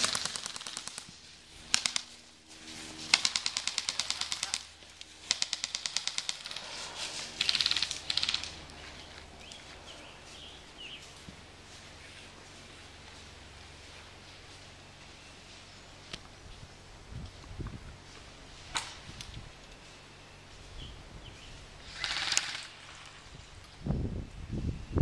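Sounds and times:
airsoft guns firing bursts: 0.0 - 2.3, 3.0 - 8.7, 21.8 - 23.0.

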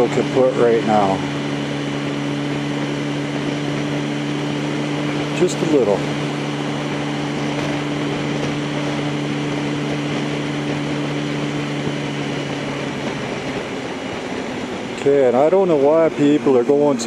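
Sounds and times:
motorcycle engine running: 0.0 - 17.0
wind on microphone: 2.0 - 15.0.

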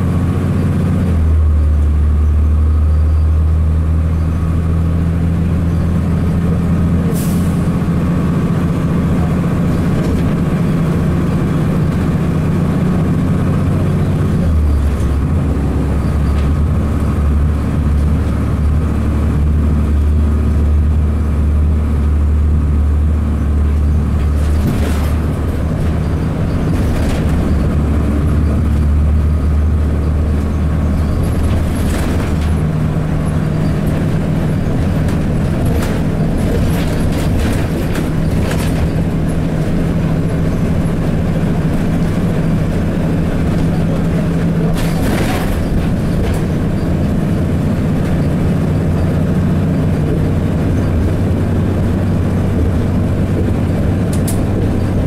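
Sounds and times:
bus diesel engine running: 0.0 - 55.0
short air hisses: 7.1 - 7.6.

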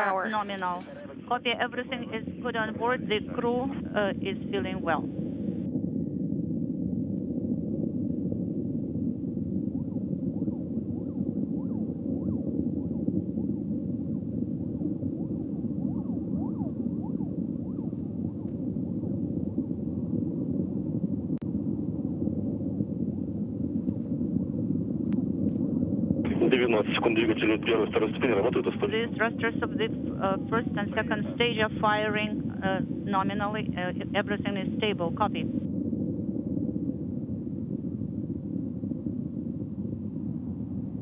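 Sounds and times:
rocket engines rumbling: 0.0 - 5.6, 26.2 - 35.5.

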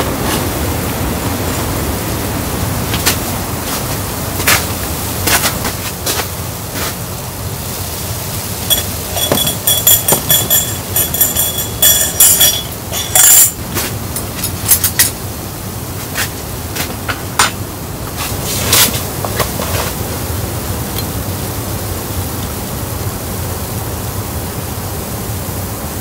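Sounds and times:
snowstorm hissing against tent: 0.0 - 26.0
teapot and tableware clinking: 8.7 - 15.2.

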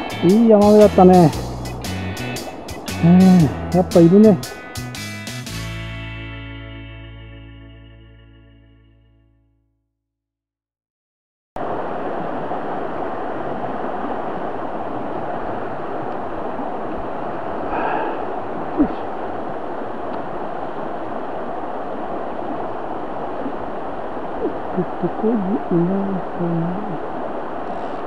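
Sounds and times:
river rushing over stones: 11.6 - 25.2, 27.0 - 28.0.

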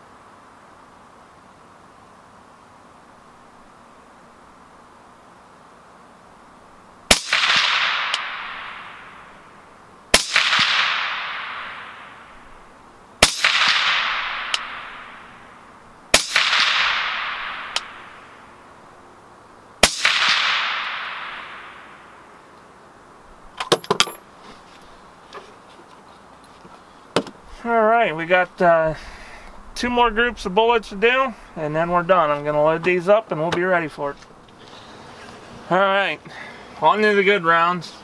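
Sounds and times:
suppressed rifle shots: 7.1 - 9.3, 10.1 - 12.3, 13.2 - 15.4, 16.1 - 18.4, 19.8 - 22.1
long echo of gunshots: 7.1 - 12.4, 13.2 - 18.6, 19.8 - 22.4.

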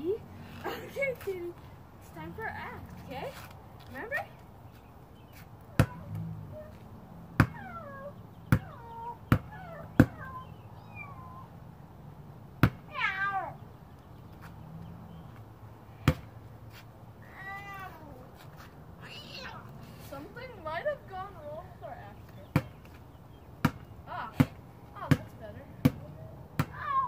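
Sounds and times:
basketball bouncing on concrete: 5.7 - 10.4, 12.6 - 13.0, 16.0 - 16.4, 22.2 - 23.0, 23.6 - 27.0
child imitating cat meow: 12.9 - 13.6, 17.2 - 18.2, 26.8 - 27.0.

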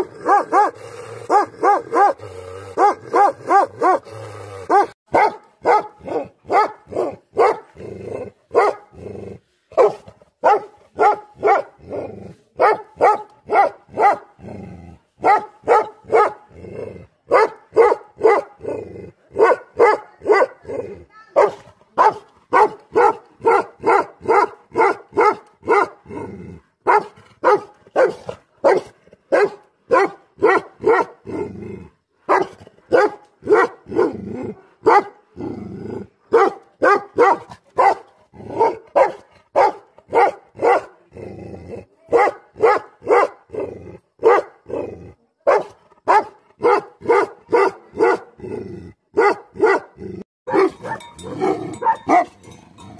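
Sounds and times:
dog barking: 0.0 - 4.1, 4.7 - 7.8, 8.5 - 9.0, 9.8 - 11.8, 12.6 - 14.4, 15.2 - 16.5, 17.3 - 18.7, 19.3 - 26.0, 26.8 - 31.2, 32.3 - 35.3, 36.3 - 41.0, 42.0 - 43.6, 44.2 - 44.8, 45.4 - 48.4, 49.1 - 52.5.

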